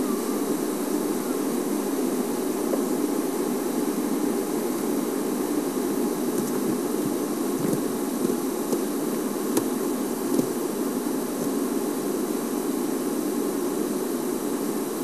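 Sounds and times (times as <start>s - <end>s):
vehicle engine humming: 0.0s - 11.6s.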